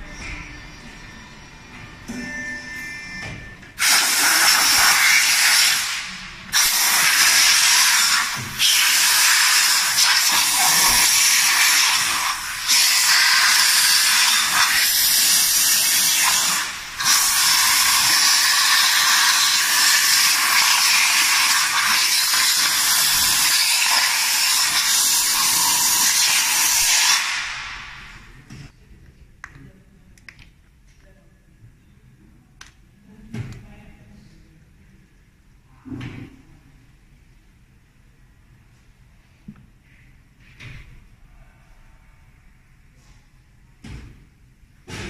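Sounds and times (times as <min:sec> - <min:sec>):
compressed air blow gun hissing: 0:03.8 - 0:28.2.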